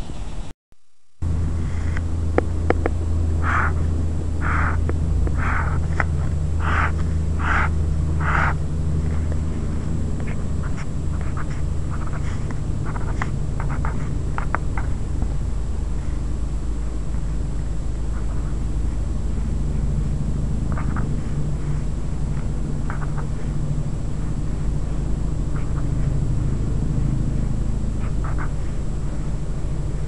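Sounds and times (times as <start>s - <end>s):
steady low hum: 0.0s - 30.0s
pen scratching on paper: 3.4s - 9.3s, 10.2s - 15.0s, 20.7s - 23.6s, 25.5s - 26.1s, 28.0s - 28.8s.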